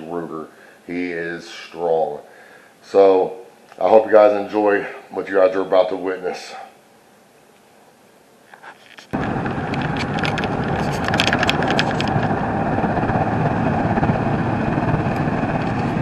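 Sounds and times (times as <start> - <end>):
short clicks and rustles: 8.5 - 12.3
road and engine noise: 8.9 - 16.0.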